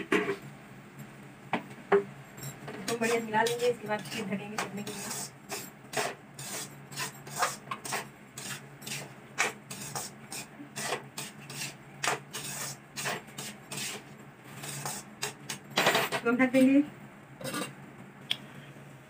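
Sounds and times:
metal spatula scraping a metal pan: 2.9s - 15.4s.

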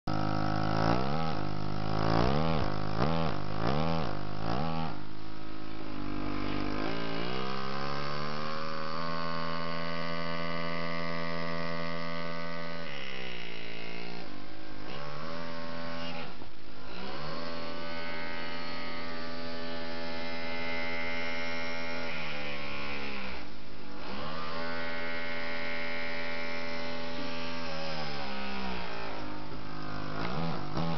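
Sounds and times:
pneumatic engraving tool buzzing: 14.9s - 30.9s.

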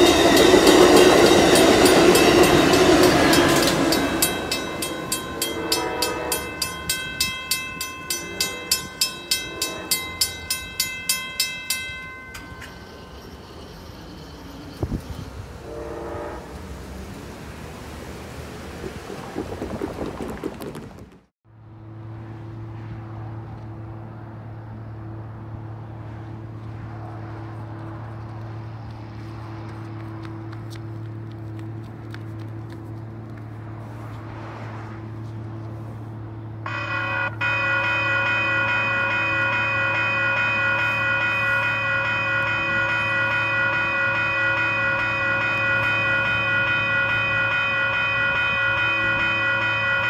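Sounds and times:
railroad crossing bell ringing: 0.0s - 16.4s, 36.5s - 50.0s
passing train rumble: 0.0s - 50.0s.

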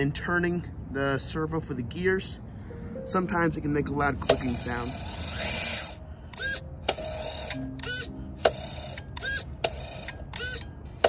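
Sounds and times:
sharp gearbox click: 4.2s - 4.8s
servo whirring: 4.2s - 11.0s.

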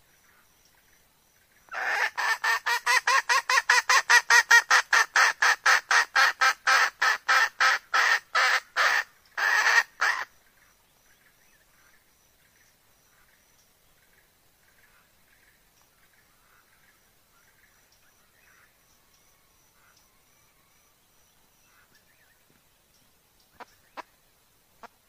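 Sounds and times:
hen clucking: 1.7s - 10.3s.

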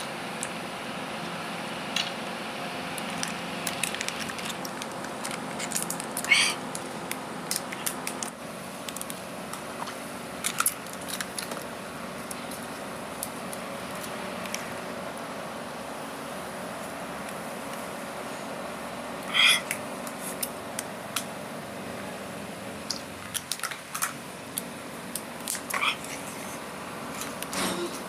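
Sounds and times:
steady background hum: 0.0s - 28.0s
plastic cups clicking and crackling: 3.0s - 12.6s, 22.9s - 26.3s.

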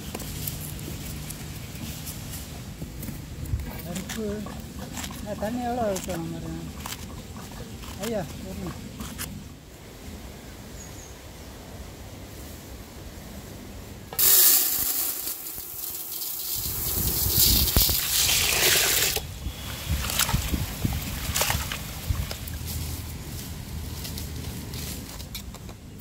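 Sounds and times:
water pouring into a pot: 14.2s - 19.2s.

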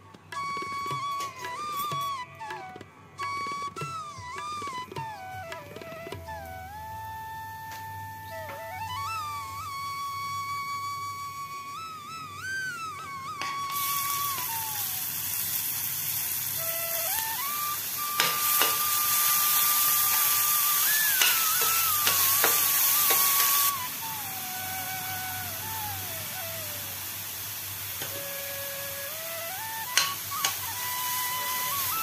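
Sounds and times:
soft background music: 0.0s - 15.2s, 16.5s - 32.0s
onions sizzling in oil: 13.4s - 32.0s.

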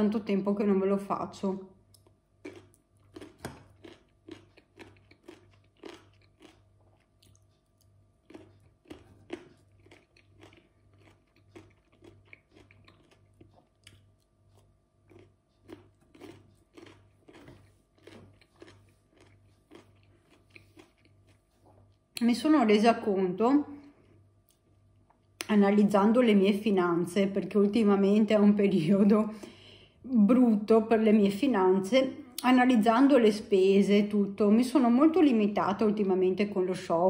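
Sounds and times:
person chewing cucumber crunches: 1.9s - 22.2s.

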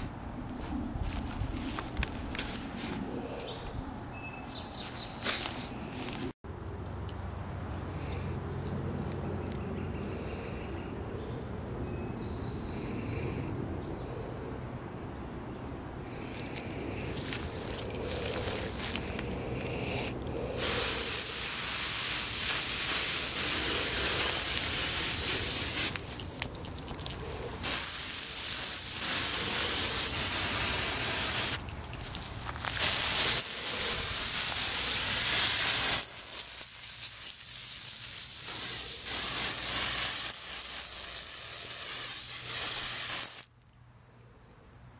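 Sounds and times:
aerosol can spraying: 17.0s - 31.6s, 32.2s - 43.5s.

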